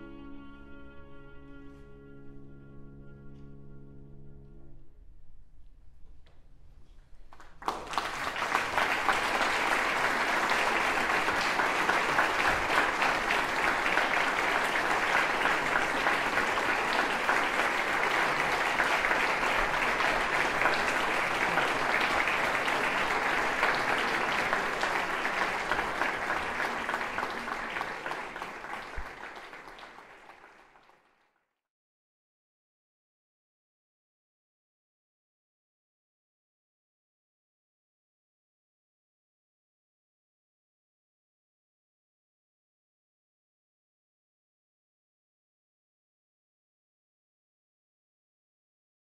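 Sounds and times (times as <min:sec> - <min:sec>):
audience applauding: 0:07.3 - 0:31.3.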